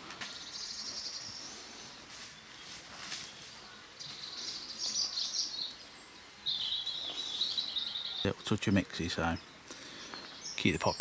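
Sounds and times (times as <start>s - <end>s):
faint outdoor background noise: 0.0s - 11.0s
songbird warbling: 3.7s - 8.4s.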